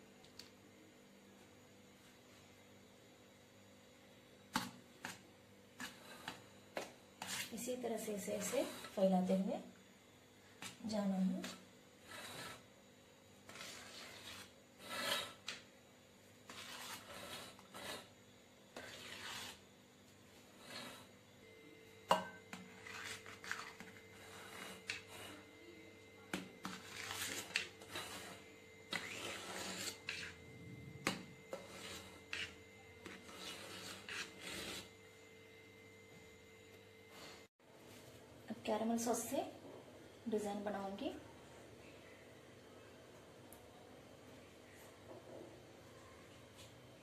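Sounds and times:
knife scraping frosting: 0:05.0 - 0:09.4, 0:10.6 - 0:12.7, 0:13.4 - 0:15.6, 0:16.4 - 0:19.7, 0:20.5 - 0:21.2, 0:22.3 - 0:25.7, 0:26.3 - 0:35.0.

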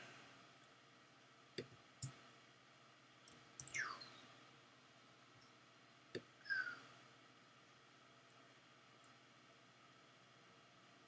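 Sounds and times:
computer mouse clicking: 0:03.3 - 0:03.8.

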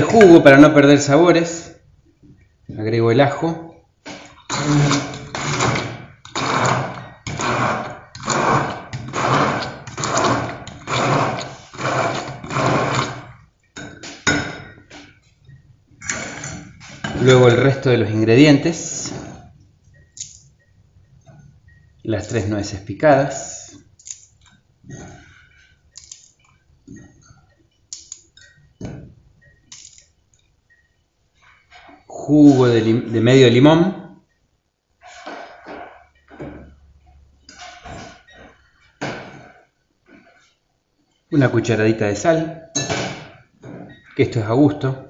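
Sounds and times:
immersion blender pulsing: 0:04.5 - 0:13.4.

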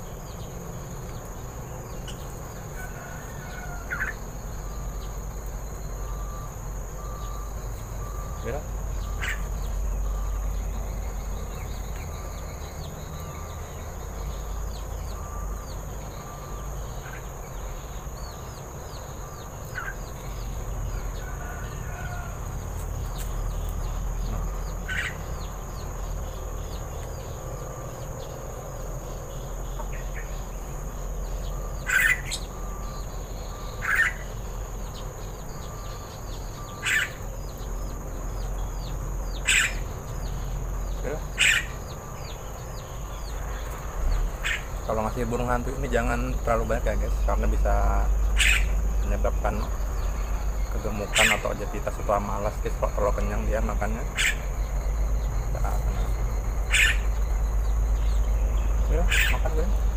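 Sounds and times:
bird chirps: 0:00.0 - 0:59.9
insect trilling: 0:00.0 - 0:59.9
short sharp calls: 0:58.9 - 0:59.8.

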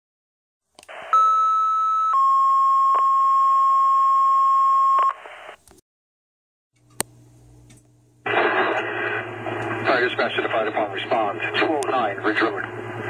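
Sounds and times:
two-tone radio page tones: 0:00.9 - 0:05.6
radio hiss: 0:05.1 - 0:05.6, 0:08.2 - 0:13.0
radio click: 0:11.8 - 0:12.0.

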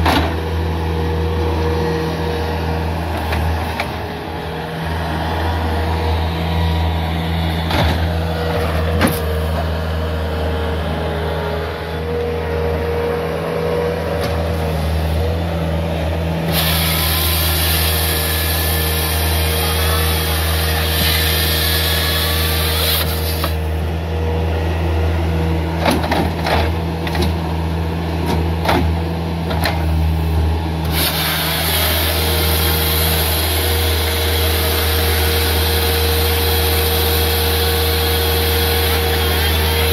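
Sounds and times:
engine running at high revs: 0:00.0 - 0:39.9
chainsaw cutting log: 0:16.4 - 0:23.6, 0:30.8 - 0:39.9.

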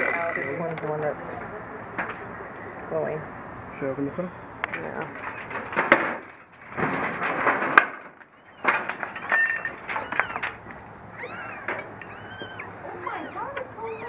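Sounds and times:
metal dumpster clatter and scraping: 0:04.8 - 0:10.6
kittens mewing: 0:08.2 - 0:14.0.

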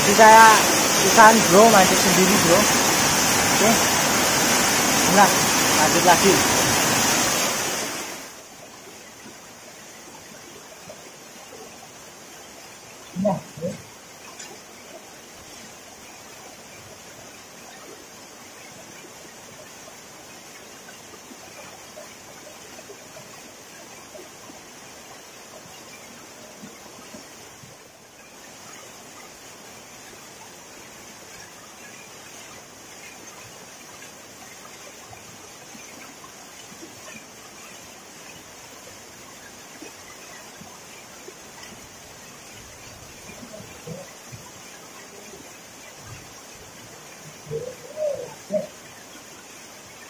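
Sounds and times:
waterfall splashing into pool: 0:00.0 - 0:12.0
water splashes: 0:00.0 - 0:50.0
waterfall rushing: 0:00.0 - 0:50.0.

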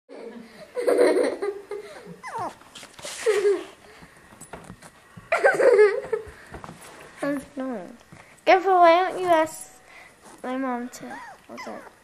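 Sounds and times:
small dog whining and yelping: 0:02.2 - 0:02.6, 0:11.1 - 0:12.0.

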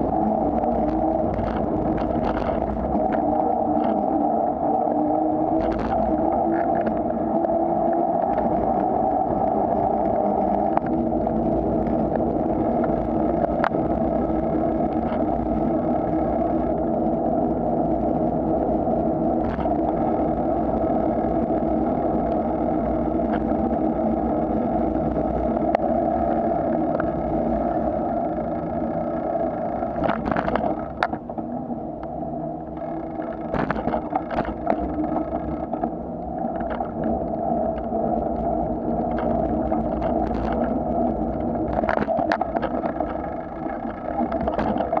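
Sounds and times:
bicycle tyres humming on pavement: 0:00.0 - 0:45.0.

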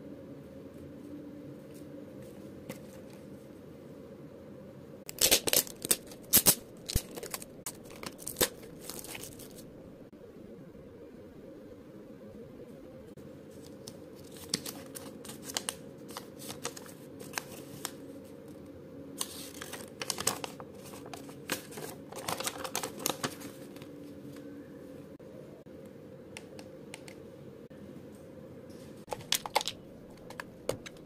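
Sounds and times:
steady low hum: 0:00.0 - 0:31.0
paper rustling: 0:05.2 - 0:09.6, 0:13.5 - 0:18.2, 0:19.2 - 0:24.5.

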